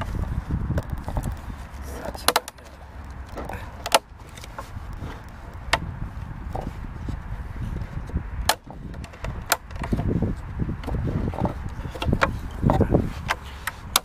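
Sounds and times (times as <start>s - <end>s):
wind rumble on microphone: 0.0s - 14.0s
knocks of hard objects: 3.3s - 4.1s, 8.4s - 10.1s, 10.8s - 14.0s.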